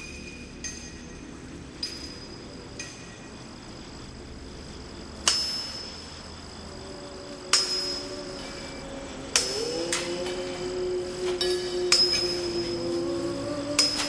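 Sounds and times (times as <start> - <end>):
metallic chimes struck: 0.0 - 3.6, 5.2 - 6.4, 7.5 - 10.2, 11.4 - 13.1, 13.7 - 14.0
low steady hum: 0.0 - 14.0.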